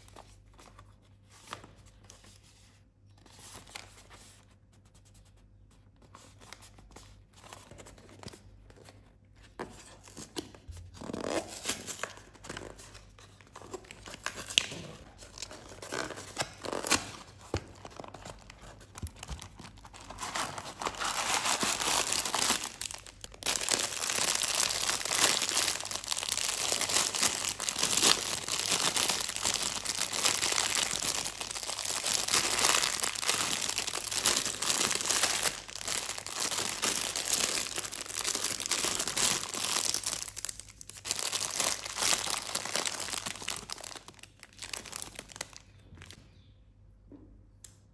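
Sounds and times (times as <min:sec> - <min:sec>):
plastic bag crinkling: 0:13.7 - 0:46.2.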